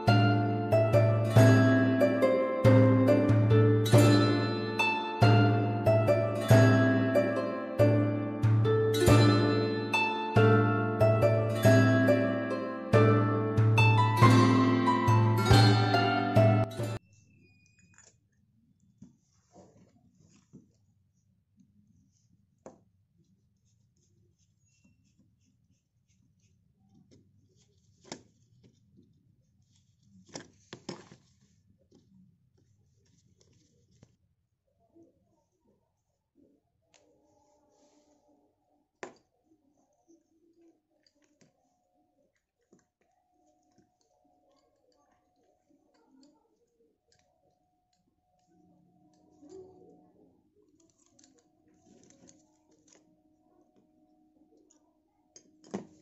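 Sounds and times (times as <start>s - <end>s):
soft scraping and rubbing: 19.0s - 21.0s.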